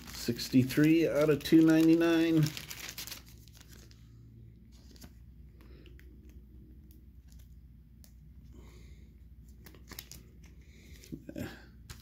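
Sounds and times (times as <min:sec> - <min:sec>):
plastic rustling: 0:00.0 - 0:04.1, 0:04.7 - 0:06.4, 0:09.4 - 0:12.0.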